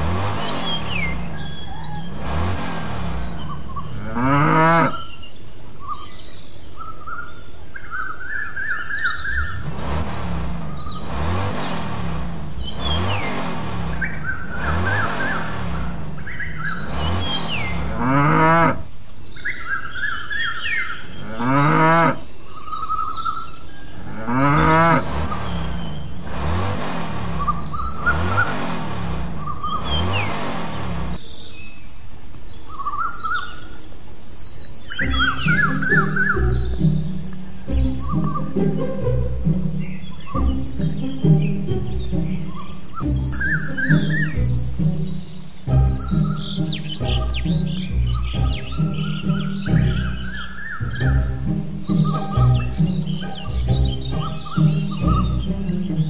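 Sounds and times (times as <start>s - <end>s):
birds chirping: 0.0s - 56.0s
cattle mooing: 3.9s - 5.1s, 17.8s - 18.8s, 21.2s - 22.2s, 24.1s - 25.7s.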